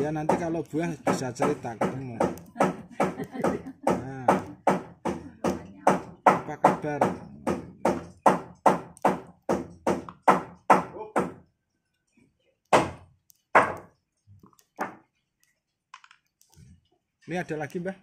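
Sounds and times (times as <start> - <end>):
rhythmic knocking: 0.0 - 11.4.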